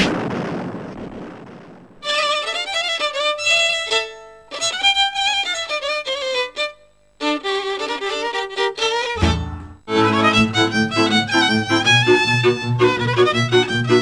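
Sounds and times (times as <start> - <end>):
rushing noise: 0.0 - 2.1
fiddle playing a folk dance tune: 2.0 - 14.0.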